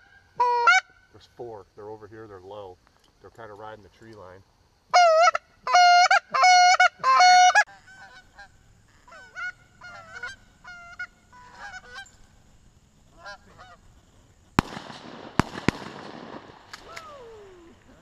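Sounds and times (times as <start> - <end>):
goose call honks: 0.0 - 1.0, 4.9 - 12.1, 13.2 - 13.8
geese honking: 0.0 - 1.1, 4.9 - 12.3, 13.1 - 14.0.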